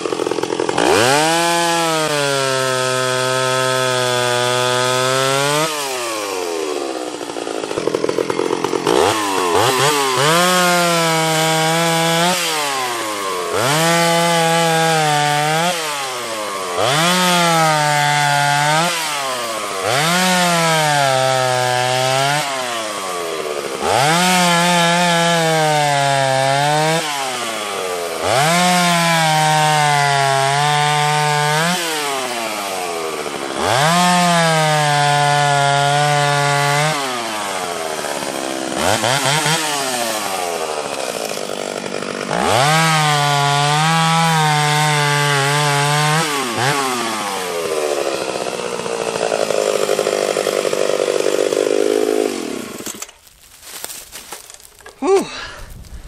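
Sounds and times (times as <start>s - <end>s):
chainsaw revving through cuts: 0.0s - 56.0s.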